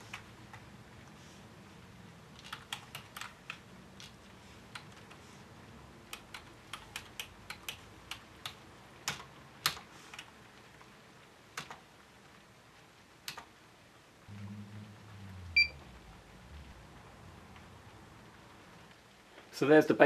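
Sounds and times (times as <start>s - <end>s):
keyboard keys clicking: 2.4s - 5.2s, 6.1s - 10.3s
low hum: 14.3s - 19.0s
short high electronic beep: 15.6s - 15.8s.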